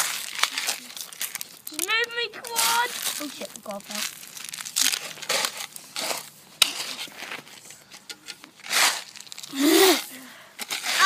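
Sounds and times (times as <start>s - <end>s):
stones clicking: 0.0s - 5.8s
gravel scraped with plastic toys: 0.0s - 11.0s.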